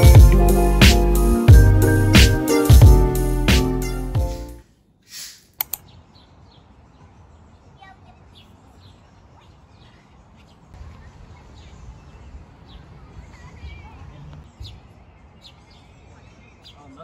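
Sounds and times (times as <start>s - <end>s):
background music: 0.0s - 4.6s
click: 5.6s - 5.8s.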